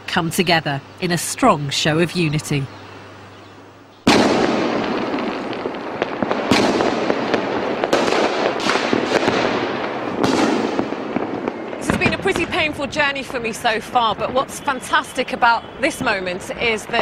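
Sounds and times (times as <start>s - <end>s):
firecrackers crackling: 4.0s - 17.0s
fireworks bangs: 4.0s - 17.0s.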